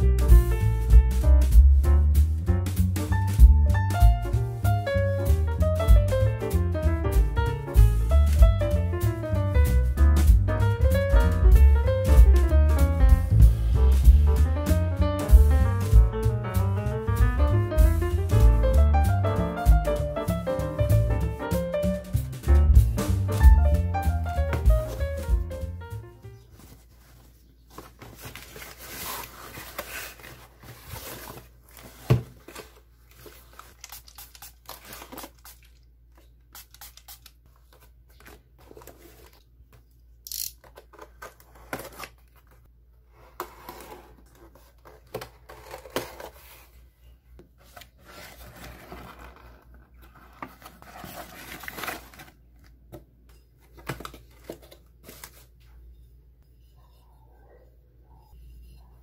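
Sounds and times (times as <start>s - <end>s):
packaging crinkling and tearing: 26.6s - 35.9s, 43.5s - 46.6s, 47.9s - 52.8s
knife slitting packing tape: 33.6s - 35.7s, 36.5s - 37.4s.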